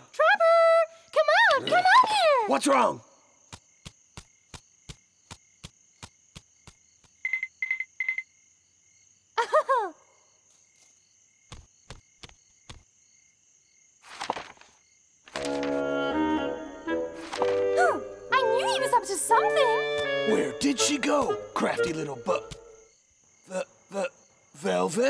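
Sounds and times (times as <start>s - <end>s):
crickets trilling: 1.0s - 25.0s
music: 15.4s - 22.8s.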